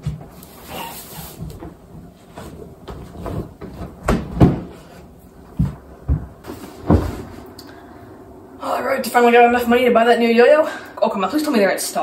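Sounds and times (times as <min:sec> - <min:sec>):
dull thumps: 0:01.4 - 0:07.5.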